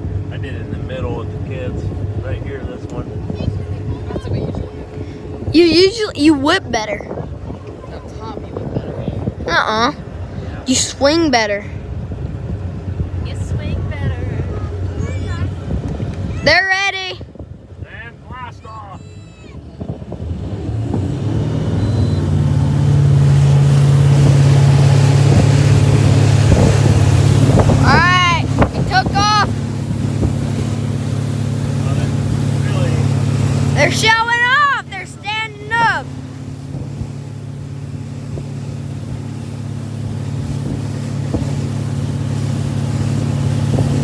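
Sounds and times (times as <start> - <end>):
boat engine accelerating: 0.0 - 44.0
wind: 0.0 - 44.0
rush of churning wake: 18.1 - 44.0.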